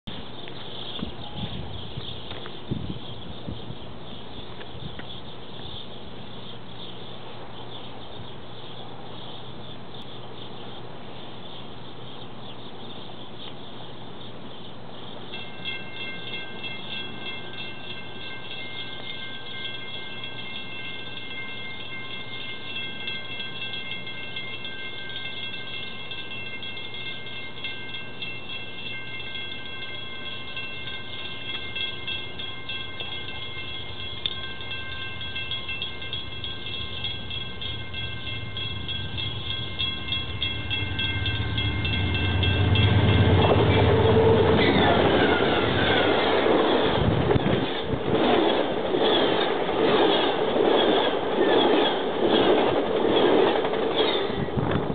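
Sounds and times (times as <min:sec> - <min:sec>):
crossing warning bell ringing: 0:15.0 - 0:54.9.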